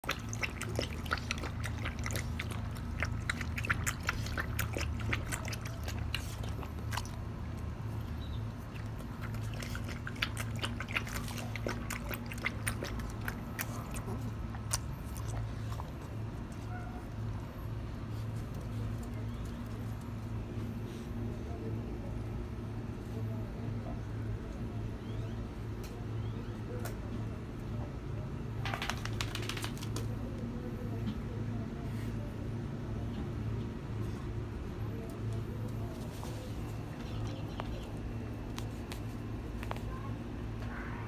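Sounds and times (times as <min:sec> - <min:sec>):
dog lapping water from metal bowl: 0:00.0 - 0:07.2, 0:08.6 - 0:16.0
steady low hum: 0:00.0 - 0:41.0.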